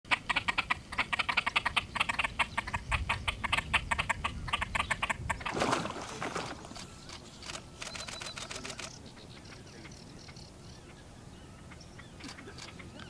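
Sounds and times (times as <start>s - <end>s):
grebes clucking calls: 0.1s - 7.6s.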